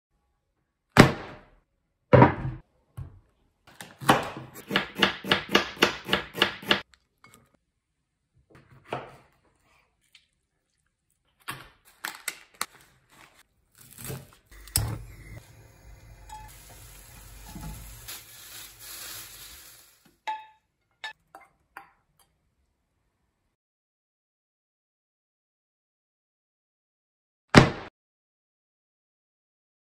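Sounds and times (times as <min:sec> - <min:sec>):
chopping on wooden board: 0:04.0 - 0:06.8.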